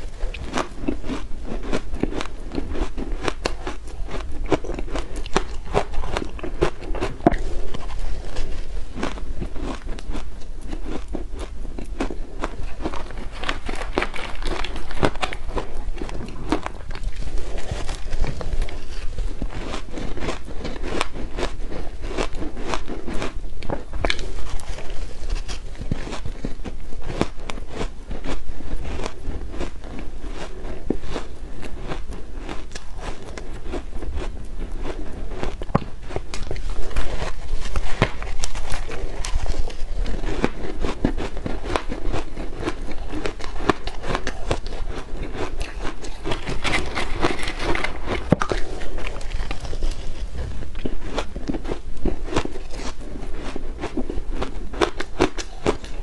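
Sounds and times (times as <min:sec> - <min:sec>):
chewing crunchy ice: 0:00.0 - 0:56.0.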